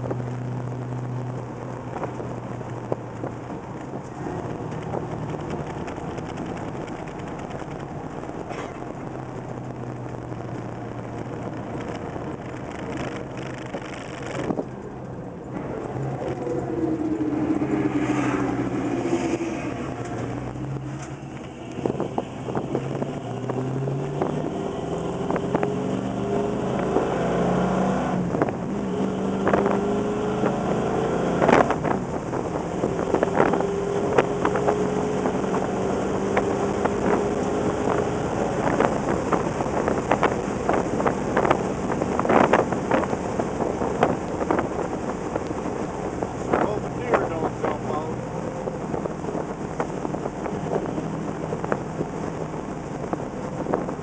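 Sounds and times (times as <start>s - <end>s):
car engine accelerating: 0.0s - 54.0s
car knocks and rattles: 1.4s - 16.4s.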